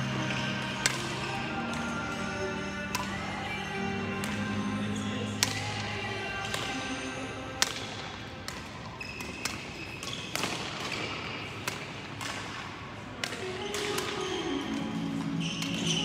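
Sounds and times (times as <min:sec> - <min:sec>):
background music: 0:00.0 - 0:08.3, 0:13.4 - 0:16.0
rackets striking shuttlecock: 0:00.1 - 0:01.9, 0:02.9 - 0:03.2, 0:05.0 - 0:06.9, 0:07.6 - 0:16.0.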